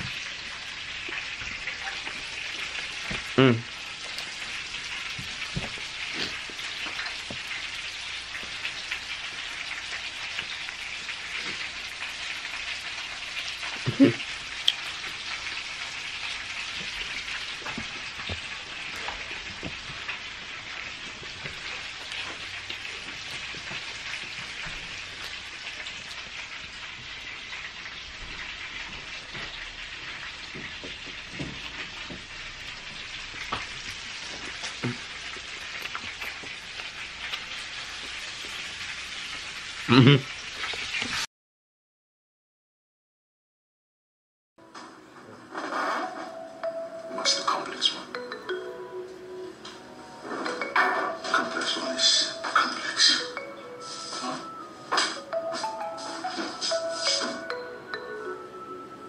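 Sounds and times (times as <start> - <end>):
person chewing: 2.1 - 9.0, 13.6 - 20.2, 21.2 - 26.3, 33.4 - 39.1, 40.2 - 41.2
steady hiss: 51.8 - 57.4.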